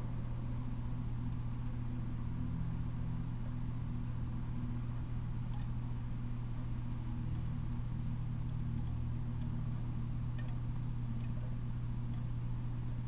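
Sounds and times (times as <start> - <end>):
low hum: 0.0 - 13.0
faint ticks: 5.5 - 5.8, 8.4 - 12.4.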